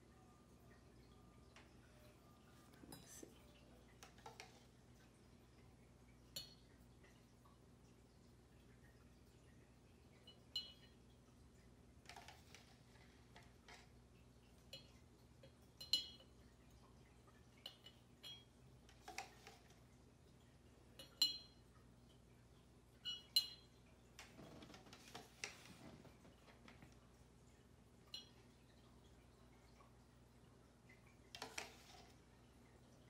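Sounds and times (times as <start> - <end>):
metal spoon clinking on glass jar: 15.8 - 16.3, 17.6 - 18.5, 21.0 - 21.6, 23.0 - 23.7.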